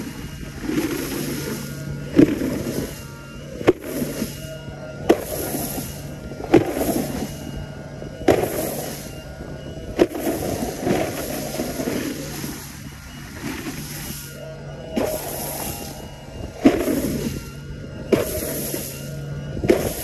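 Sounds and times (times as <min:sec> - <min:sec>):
low motor hum: 0:00.0 - 0:20.0
board slapping on water: 0:03.6 - 0:04.4, 0:05.1 - 0:07.3, 0:08.2 - 0:09.0, 0:10.0 - 0:14.1, 0:16.6 - 0:17.5, 0:18.1 - 0:18.8, 0:19.6 - 0:20.0.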